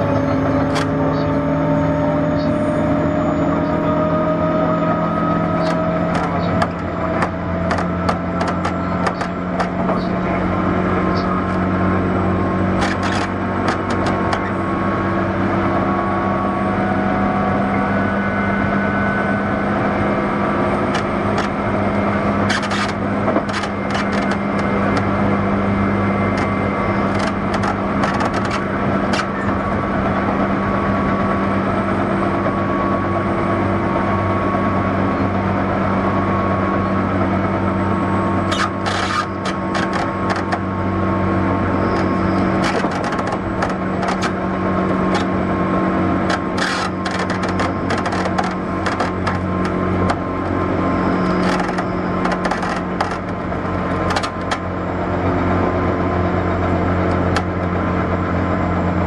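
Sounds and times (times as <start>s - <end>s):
train motor hum: 0.0s - 59.0s
wheel-on-rail noise: 0.0s - 59.0s
sharp clicking bursts: 46.2s - 50.2s, 51.2s - 53.4s.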